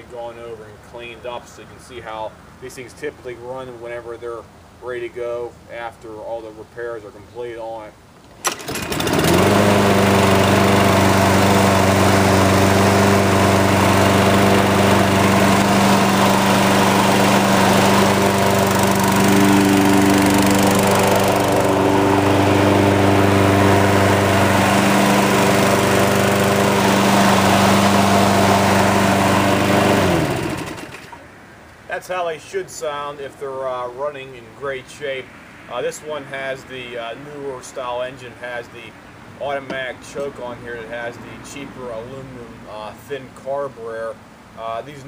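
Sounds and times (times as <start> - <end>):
lawn mower engine starting and running: 8.2 - 33.1.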